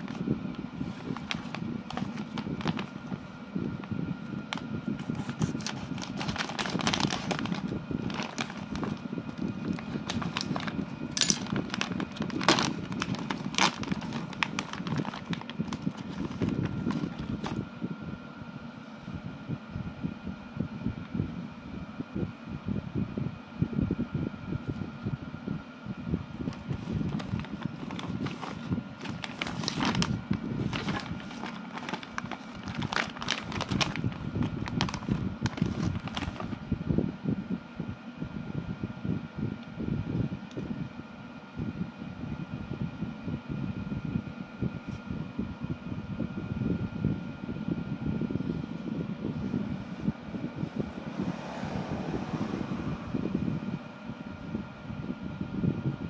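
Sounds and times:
plastic bag crinkling: 0.0 - 3.3, 4.5 - 17.6, 26.4 - 36.6
low background rumble: 0.0 - 56.0.

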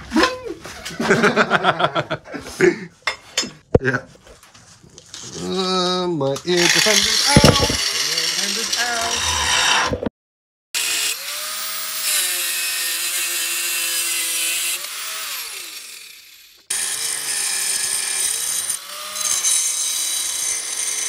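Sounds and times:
angle grinder cutting steel: 6.4 - 10.1, 10.8 - 21.0.

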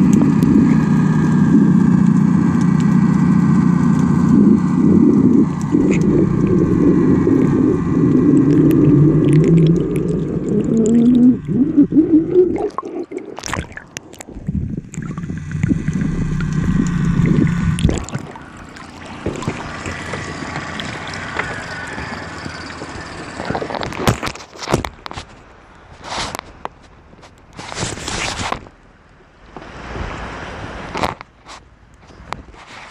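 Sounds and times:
water gurgling: 0.0 - 24.5
muffled underwater drone: 0.0 - 25.2.

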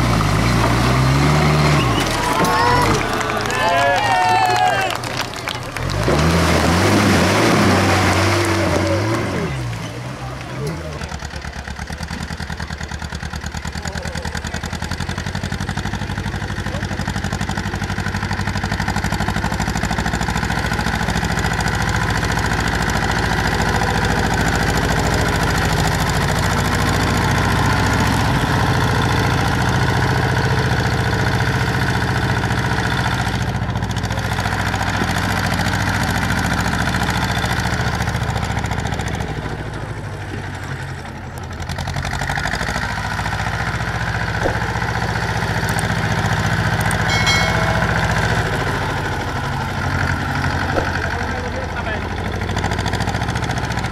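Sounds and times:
tractor engine running: 0.0 - 53.9.

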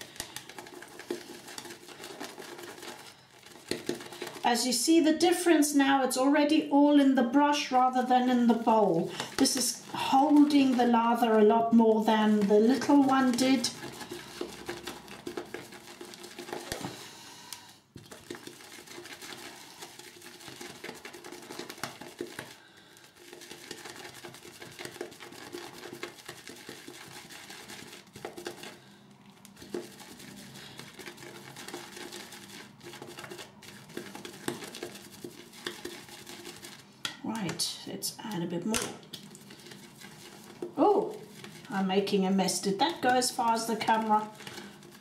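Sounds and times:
shaving brush swishing in bowl: 7.8 - 17.0, 29.4 - 36.9, 39.2 - 45.0.

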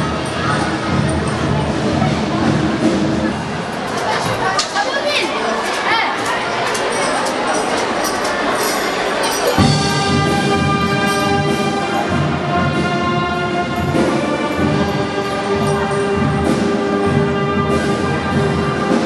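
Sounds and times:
wind band playing chords: 9.3 - 19.0.

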